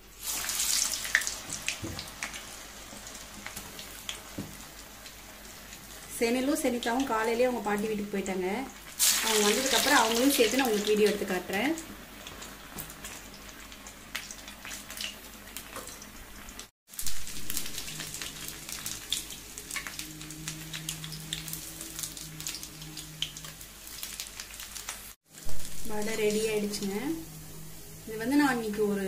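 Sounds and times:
food deep-frying in oil: 0:00.0 - 0:29.0.

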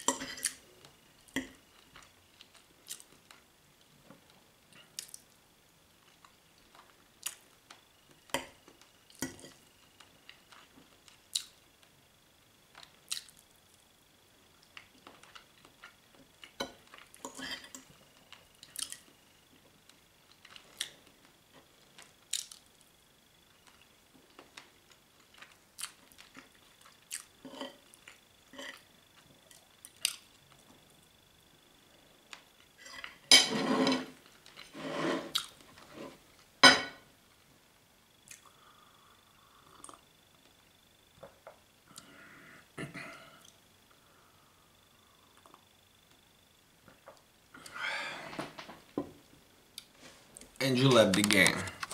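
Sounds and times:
cutlery scraping on plate: 0:32.8 - 0:35.3.

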